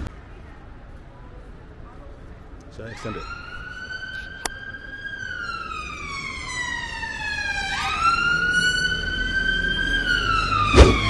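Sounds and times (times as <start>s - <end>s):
emergency vehicle siren wailing: 2.8s - 11.0s.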